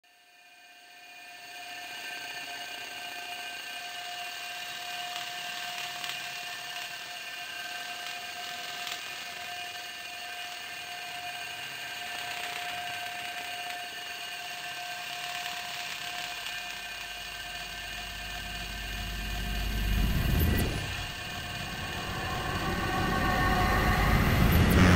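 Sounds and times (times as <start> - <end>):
drone of high tones: 17.2 - 24.9
low rumble: 17.4 - 24.9.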